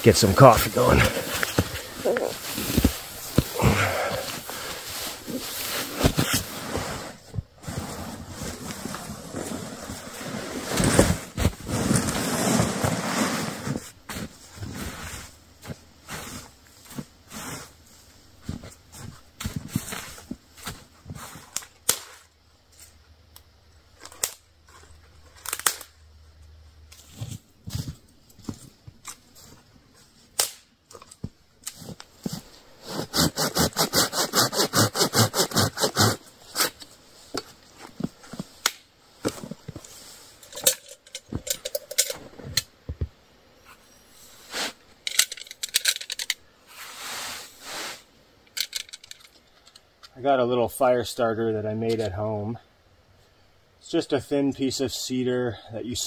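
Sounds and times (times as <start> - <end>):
fast rasping strokes: 32.9 - 36.2.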